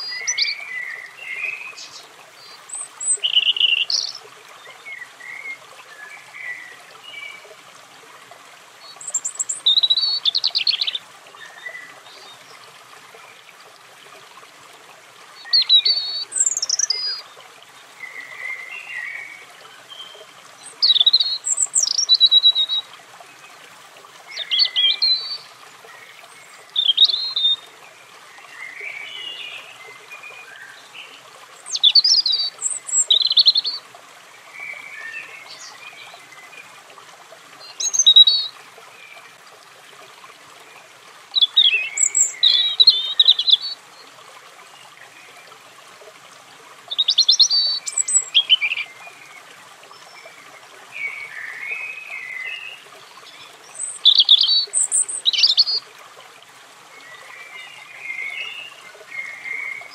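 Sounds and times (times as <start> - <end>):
robin singing: 0.0 - 7.4, 8.9 - 12.5, 15.4 - 17.3, 18.0 - 22.9, 24.3 - 27.7, 28.5 - 33.8, 37.6 - 38.6, 41.4 - 43.8, 46.9 - 49.4, 50.0 - 55.9.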